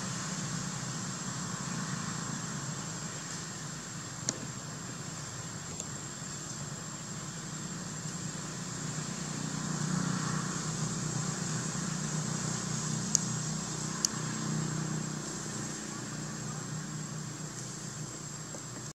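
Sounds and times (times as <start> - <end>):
low engine-like hum: 0.0 - 18.9.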